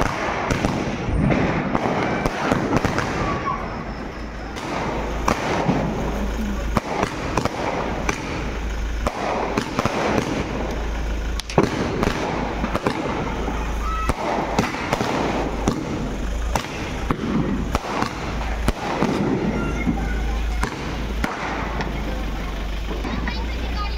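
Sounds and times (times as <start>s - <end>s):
firecrackers banging and crackling: 0.0s - 23.9s.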